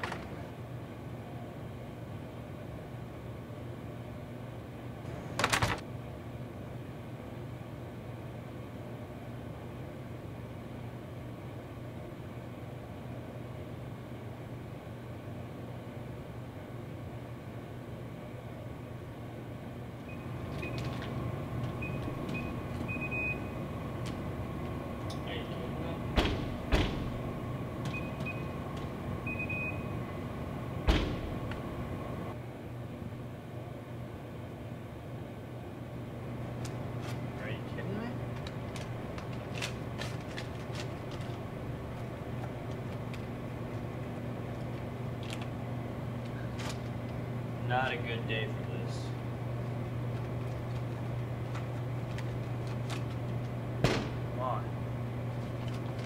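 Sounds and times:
steady low hum: 0:00.0 - 0:56.0
keypad beeps: 0:20.1 - 0:20.9, 0:21.8 - 0:23.6, 0:27.9 - 0:28.6, 0:29.2 - 0:30.0
paper bill crinkling: 0:38.2 - 0:43.8, 0:50.1 - 0:53.5, 0:55.3 - 0:56.0.

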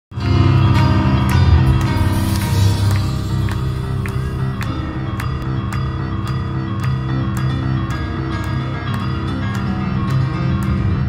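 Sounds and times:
drum and cymbal hits: 0:01.4 - 0:04.6.

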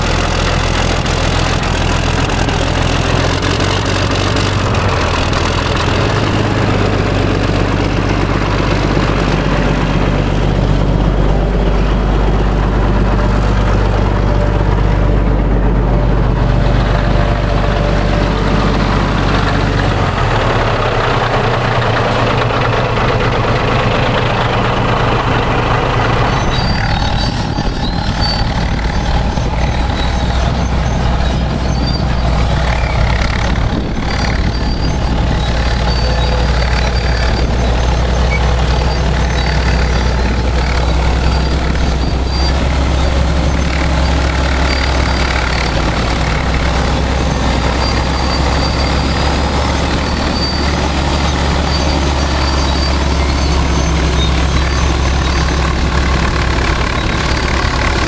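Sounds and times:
heavy diesel engines droning: 0:00.0 - 0:58.0
wind on microphone: 0:26.2 - 0:36.6.

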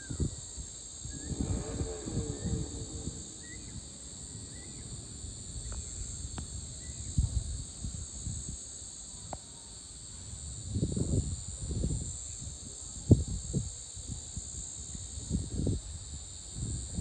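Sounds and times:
crickets and insects trilling: 0:00.0 - 0:17.0
low rumbles: 0:01.1 - 0:05.9.

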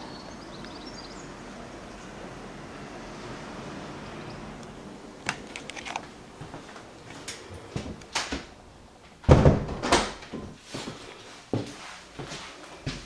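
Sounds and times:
door clicks and knocks: 0:09.3 - 0:10.6.

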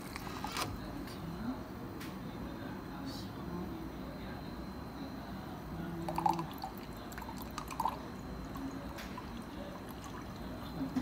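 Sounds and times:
water pouring into a glass: 0:06.0 - 0:10.8.

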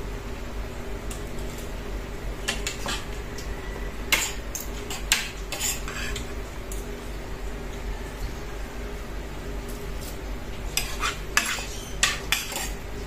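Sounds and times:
cutlery clinking on a plate: 0:04.1 - 0:06.2, 0:10.8 - 0:12.8.

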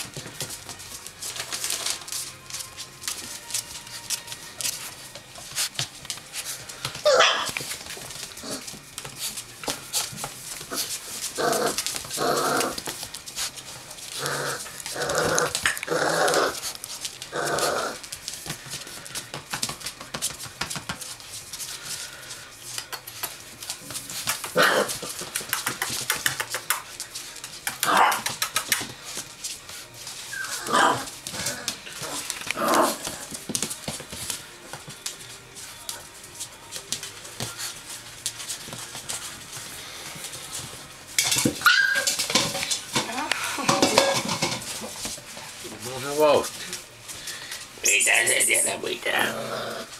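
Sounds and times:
puppies growling and yapping: 0:00.0 - 0:19.7, 0:21.6 - 0:34.9, 0:37.5 - 0:49.9
puppies yelping: 0:07.0 - 0:07.6, 0:30.2 - 0:33.1, 0:41.6 - 0:42.4
small clicks and scuffs: 0:18.1 - 0:30.3.

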